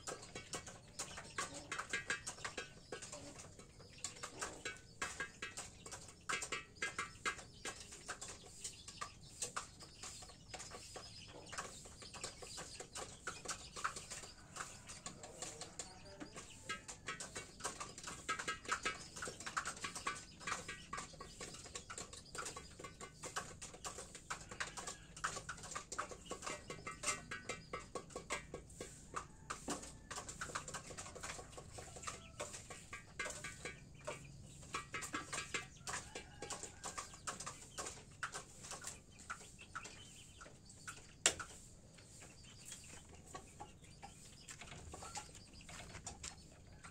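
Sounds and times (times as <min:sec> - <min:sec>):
chickens clucking and chirping: 0:00.0 - 0:46.9.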